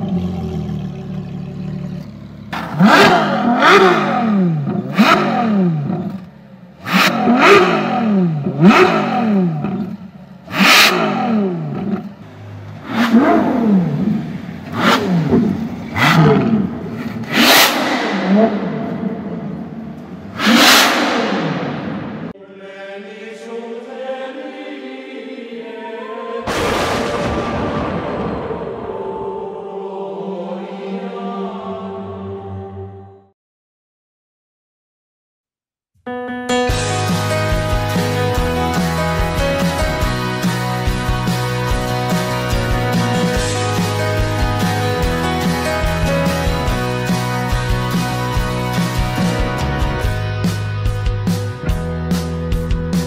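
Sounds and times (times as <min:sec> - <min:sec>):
sports car engine revving: 0:00.0 - 0:22.4
loud boom: 0:17.7 - 0:22.4, 0:26.5 - 0:30.0
choir-like music sting: 0:21.8 - 0:33.3.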